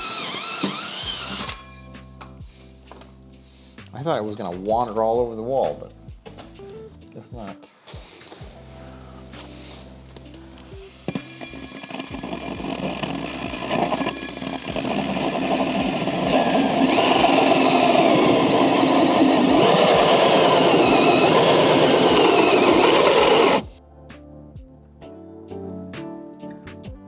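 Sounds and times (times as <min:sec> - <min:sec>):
drill hole saw cutting wood: 0:00.0 - 0:01.8, 0:11.1 - 0:23.7.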